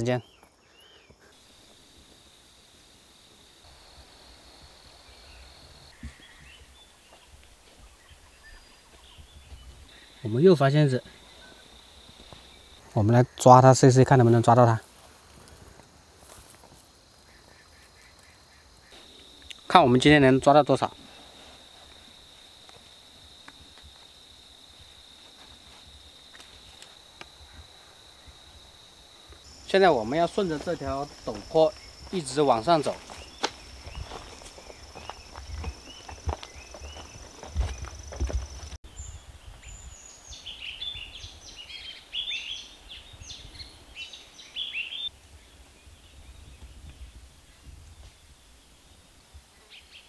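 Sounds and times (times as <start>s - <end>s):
insect trill: 0.0s - 45.2s
faint bird chirps: 4.9s - 13.6s
insects singing high-pitched: 16.2s - 38.8s.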